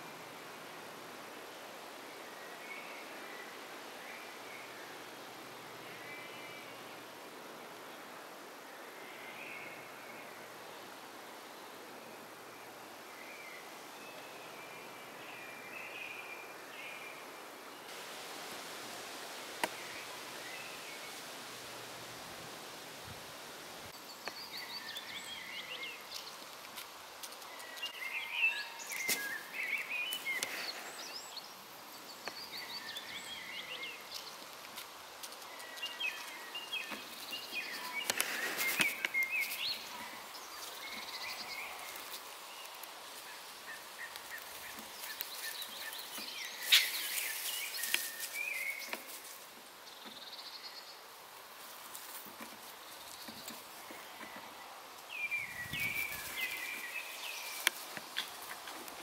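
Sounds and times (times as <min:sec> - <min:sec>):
songbirds chirping: 0:00.0 - 0:59.0
vegetation rustling: 0:17.9 - 0:50.3, 0:51.1 - 0:59.0.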